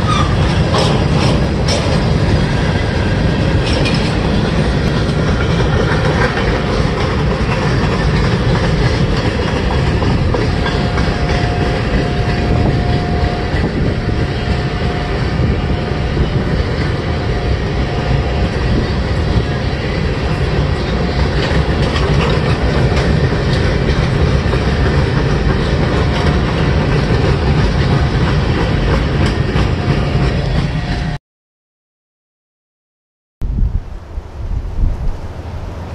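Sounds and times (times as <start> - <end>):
wheels clacking over rail joints: 0.0 - 31.1
freight train rumbling past: 0.0 - 31.2, 33.4 - 35.9.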